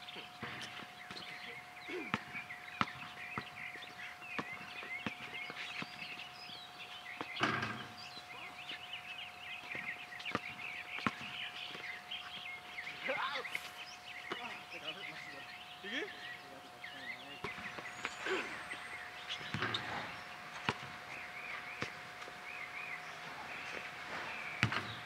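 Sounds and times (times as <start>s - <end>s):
high chirping: 0.1s - 25.0s
basketball dribbling on hard court: 2.1s - 3.5s
ball hitting hoop: 19.4s - 20.0s, 24.6s - 25.0s.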